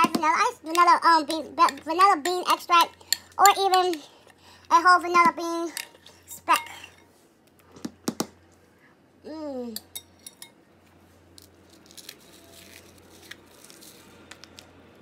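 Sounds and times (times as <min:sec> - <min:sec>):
utensils clinking on dishes: 0:09.8 - 0:10.6.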